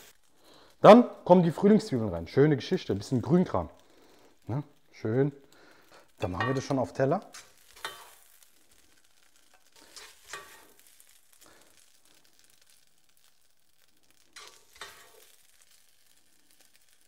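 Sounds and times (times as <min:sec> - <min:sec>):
fried rice sizzling in wok: 0:00.0 - 0:17.0
spatula scraping wok: 0:06.1 - 0:12.8, 0:14.1 - 0:16.9.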